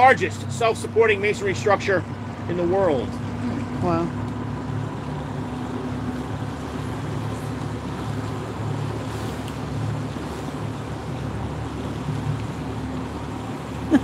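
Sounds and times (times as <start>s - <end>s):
boat engine drone: 0.0s - 14.0s.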